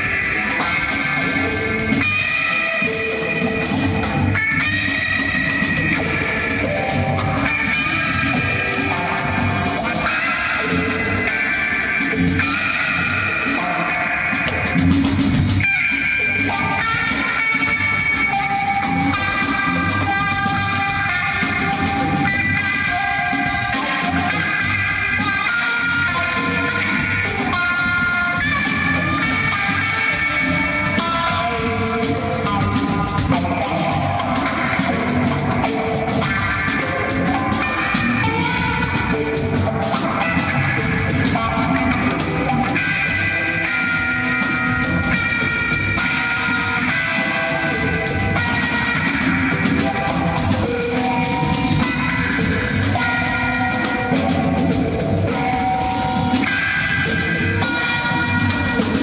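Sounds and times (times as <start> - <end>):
busy drum kit: 0.0 - 59.0
electric guitar lead line: 0.0 - 59.0
rock band playing: 0.0 - 59.0.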